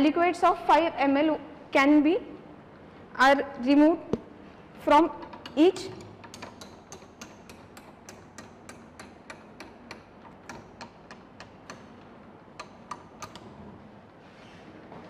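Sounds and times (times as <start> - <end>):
mechanical ticking: 5.2 - 13.6.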